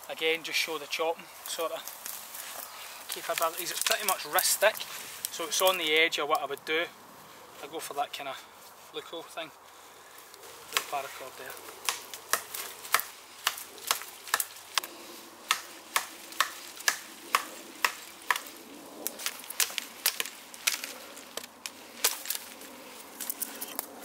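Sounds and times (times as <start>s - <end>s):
knife chopping into branch: 10.7s - 11.0s, 11.8s - 18.5s.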